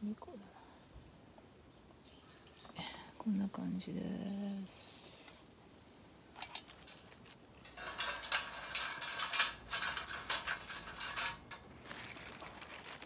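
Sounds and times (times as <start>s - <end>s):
sheet metal clinking and rattling: 6.4s - 11.7s.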